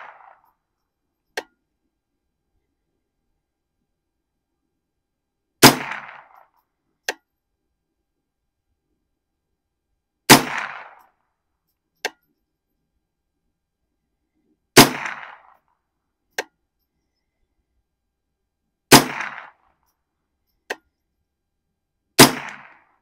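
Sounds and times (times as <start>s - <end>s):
rifle shots: 0.0s - 0.5s, 5.6s - 6.6s, 10.3s - 11.1s, 14.8s - 15.6s, 18.9s - 19.7s, 22.2s - 23.0s.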